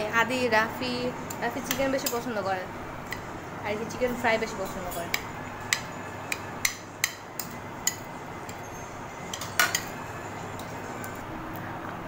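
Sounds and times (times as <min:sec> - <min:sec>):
steady low hum: 0:00.0 - 0:12.0
cutlery clinking on plates: 0:09.3 - 0:11.3.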